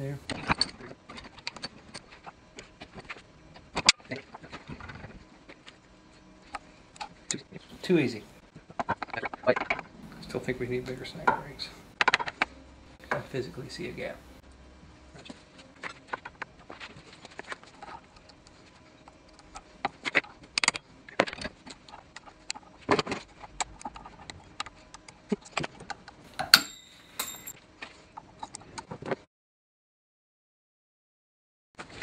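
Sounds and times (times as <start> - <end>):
metal parts clicking and clinking: 26.3 - 27.6
ringing metal taps: 26.4 - 27.5.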